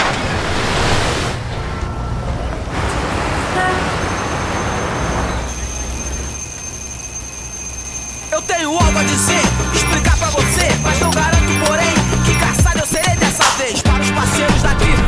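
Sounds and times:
traffic rumble: 0.0 - 15.0
faint high whine: 1.7 - 8.7
car horn toot: 3.4 - 5.6.

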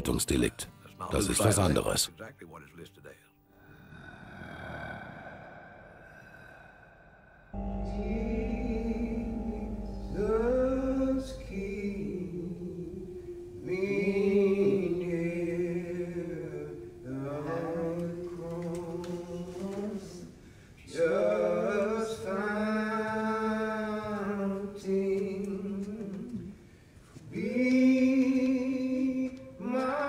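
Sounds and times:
person singing unaccompanied: 7.6 - 26.6.

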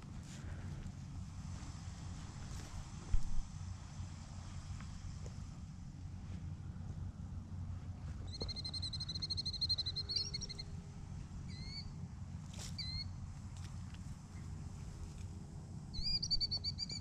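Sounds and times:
wind rumble on microphone: 0.0 - 9.0
bird whistling and chirping: 8.3 - 10.7, 11.5 - 11.9, 12.8 - 13.1, 16.0 - 17.0.

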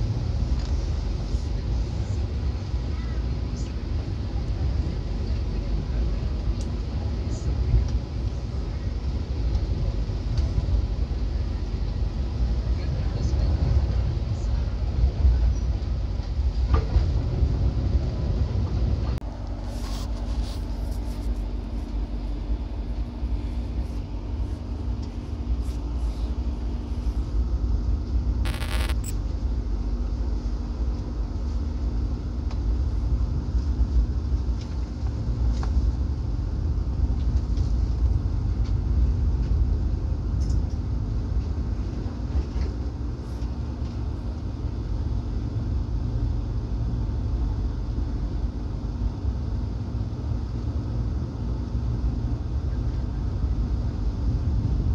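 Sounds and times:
train rumbling on rails: 0.0 - 28.4, 29.1 - 54.9
steady hum: 19.3 - 31.3.

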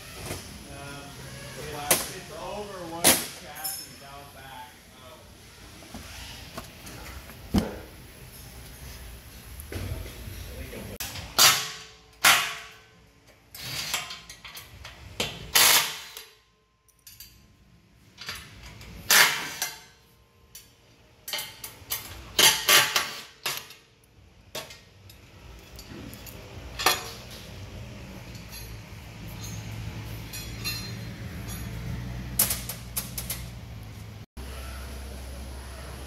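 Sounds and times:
metal hardware clanking on steel: 24.5 - 33.5.

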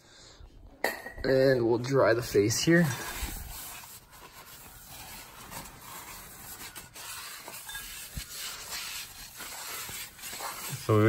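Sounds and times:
paper towel wiping metal: 2.6 - 11.0.

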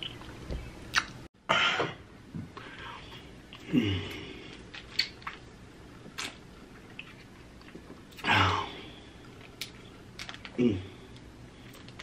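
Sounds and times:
man sucking and lip smacks: 0.0 - 1.2.

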